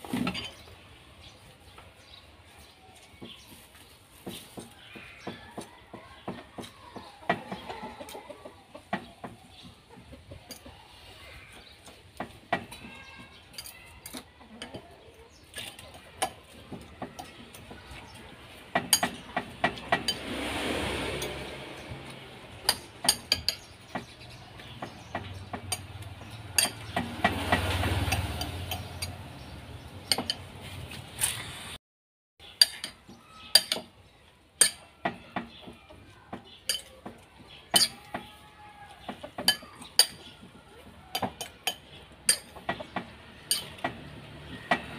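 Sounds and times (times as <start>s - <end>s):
utensil clinking on ceramic bowl: 22.7s - 23.6s, 36.7s - 37.0s, 37.7s - 38.2s.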